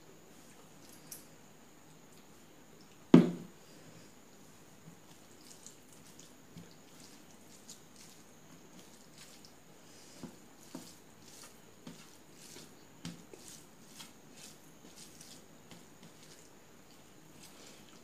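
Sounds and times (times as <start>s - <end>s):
wet rice squishing: 4.4s - 18.0s.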